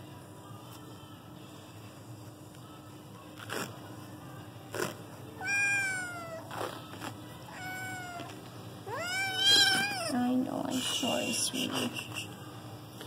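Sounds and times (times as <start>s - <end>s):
kitten meowing: 5.4s - 6.4s, 7.5s - 8.3s, 8.9s - 10.2s.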